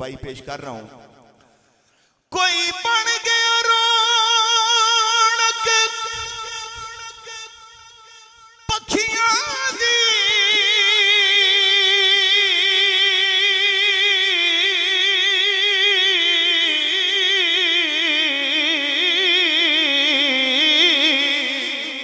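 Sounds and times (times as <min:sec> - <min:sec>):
man singing with vibrato: 0:02.3 - 0:22.0.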